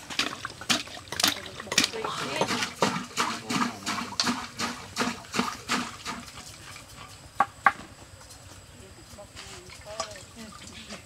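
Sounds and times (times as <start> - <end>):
sharp knocks on clay jar: 7.4 - 7.9.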